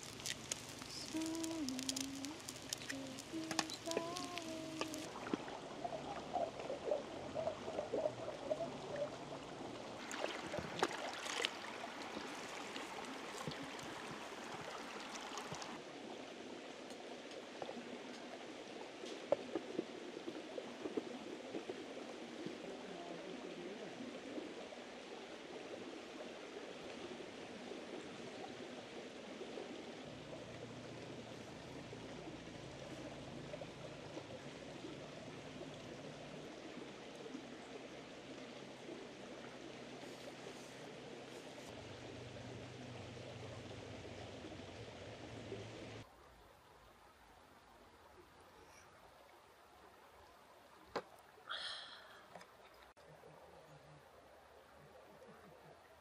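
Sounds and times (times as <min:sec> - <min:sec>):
stream rushing: 0:00.0 - 0:16.6.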